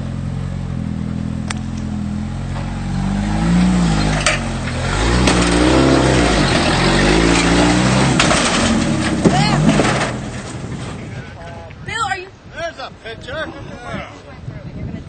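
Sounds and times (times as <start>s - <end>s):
engine revving under load: 0.0s - 11.2s.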